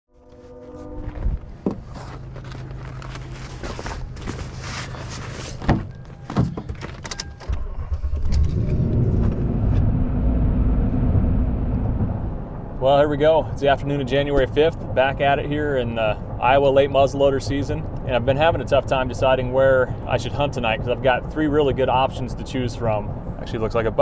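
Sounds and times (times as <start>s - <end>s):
low steady hum: 0.1s - 24.0s
rustling: 0.2s - 7.4s
truck driving rumble from inside cab: 1.2s - 24.0s.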